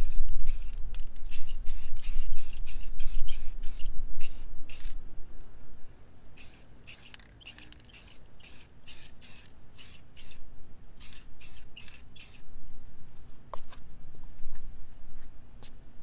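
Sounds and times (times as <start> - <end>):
aerosol spray can hissing: 0.0 - 5.0, 6.4 - 10.4, 11.0 - 12.4.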